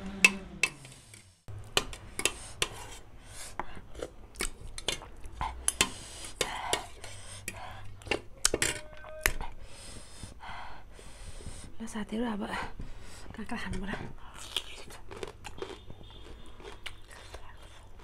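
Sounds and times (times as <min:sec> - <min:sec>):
cutlery clinking on metal plate: 0:08.1 - 0:08.9
chewing mouth sounds: 0:14.2 - 0:18.0.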